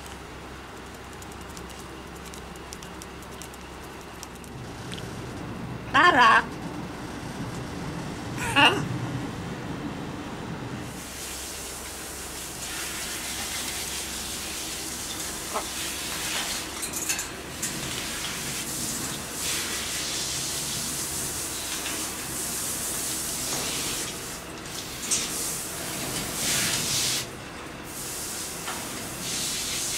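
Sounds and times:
water spraying hiss: 0:10.9 - 0:16.8, 0:17.8 - 0:27.3, 0:27.9 - 0:29.9.

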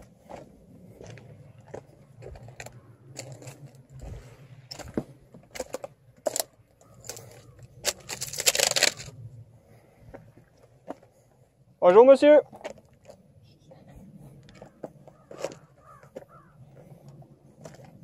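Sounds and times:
footsteps on rock and stones: 0:00.0 - 0:09.1, 0:14.4 - 0:18.0.

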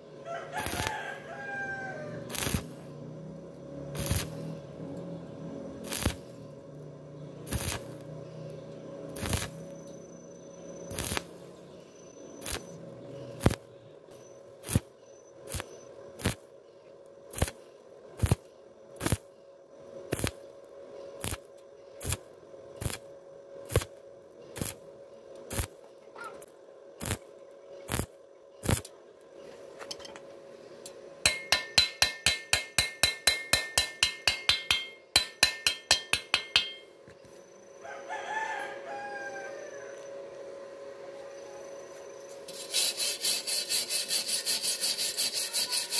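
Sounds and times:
faint steady hum: 0:00.0 - 0:45.9
welding arc crackling: 0:00.6 - 0:01.3, 0:02.1 - 0:03.0, 0:03.9 - 0:04.6, 0:05.6 - 0:08.2, 0:09.1 - 0:09.8, 0:10.9 - 0:11.7, 0:12.4 - 0:16.5, 0:17.3 - 0:19.3, 0:20.1 - 0:20.5, 0:21.2 - 0:24.8, 0:25.5 - 0:25.8, 0:26.4 - 0:29.0, 0:30.8 - 0:37.0, 0:42.2 - 0:45.9
ringing metallic taps: 0:31.3 - 0:36.9.

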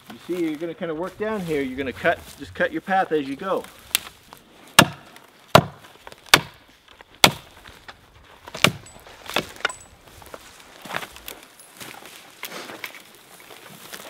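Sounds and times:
axe chopping wood: 0:04.8 - 0:06.6, 0:07.2 - 0:07.5, 0:08.5 - 0:09.6.

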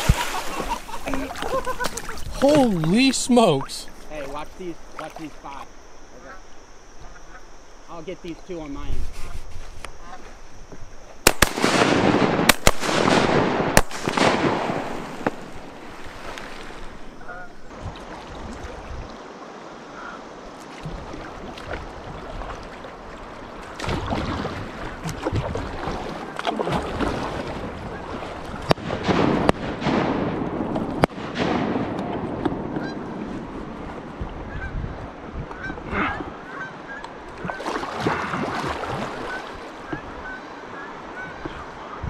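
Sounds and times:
wind noise: 0:00.0 - 0:04.9, 0:08.6 - 0:19.2, 0:23.8 - 0:40.4
water noise: 0:00.0 - 0:42.0
geese honking: 0:06.1 - 0:07.6, 0:17.2 - 0:17.7, 0:32.7 - 0:33.1, 0:35.6 - 0:37.8, 0:39.2 - 0:42.0.

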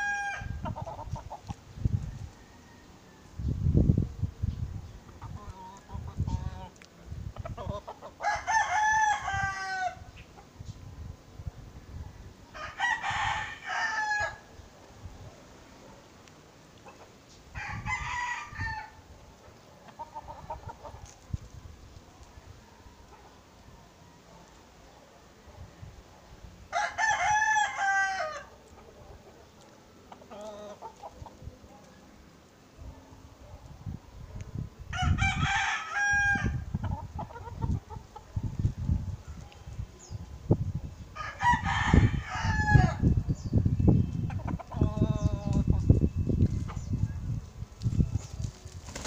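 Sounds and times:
rooster crowing: 0:00.0 - 0:00.6, 0:02.1 - 0:03.4, 0:08.2 - 0:10.0, 0:12.5 - 0:14.5, 0:17.6 - 0:19.0, 0:26.7 - 0:28.5, 0:34.9 - 0:36.6, 0:41.2 - 0:43.1.

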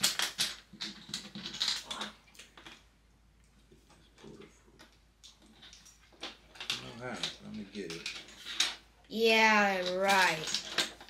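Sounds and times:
plastic bricks clicking: 0:00.0 - 0:02.8, 0:09.6 - 0:11.0.

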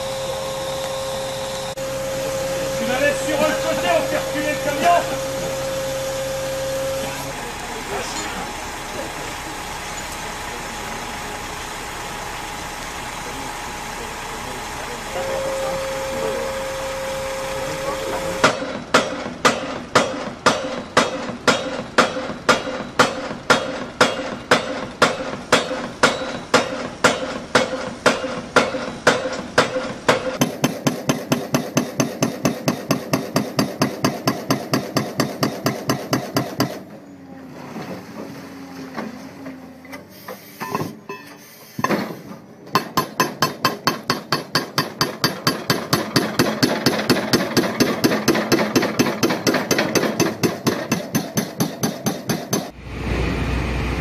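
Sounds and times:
heavy mechanical hammering: 0:15.2 - 0:36.9, 0:42.7 - 0:52.8.

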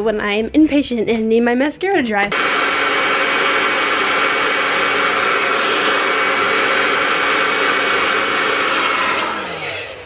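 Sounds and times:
hair dryer running: 0:02.3 - 0:10.0.

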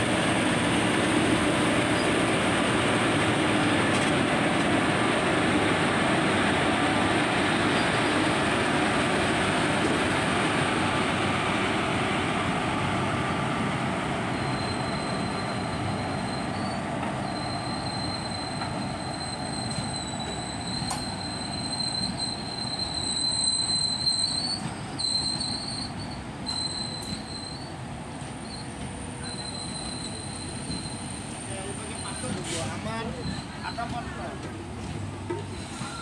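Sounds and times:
train rolling on rails: 0:00.0 - 0:36.0
high wheel squeal: 0:14.3 - 0:34.3, 0:35.3 - 0:36.0.

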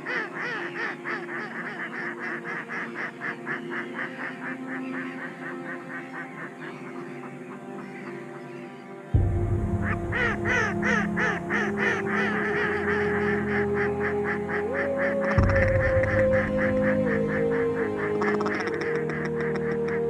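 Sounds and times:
goose honking: 0:00.0 - 0:09.0, 0:09.8 - 0:20.0
music with long held notes: 0:00.0 - 0:20.0
deep bass music: 0:09.2 - 0:20.0.

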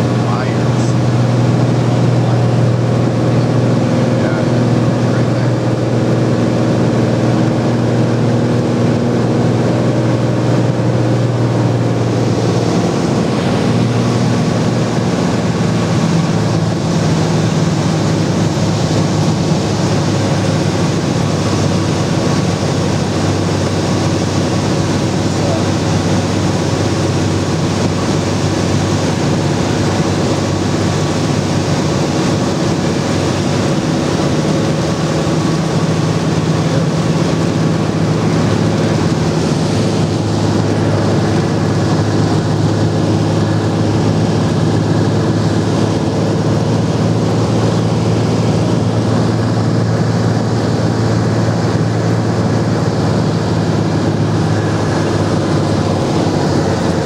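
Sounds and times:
light aircraft engine drone: 0:00.0 - 0:57.0
wind rush: 0:25.9 - 0:57.0.

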